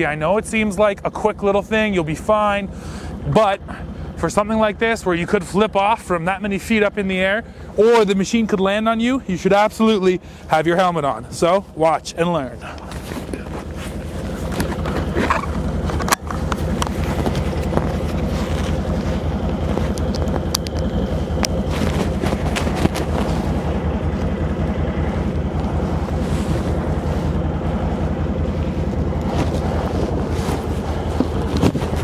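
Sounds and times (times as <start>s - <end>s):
atv engine idling: 0.0s - 32.0s.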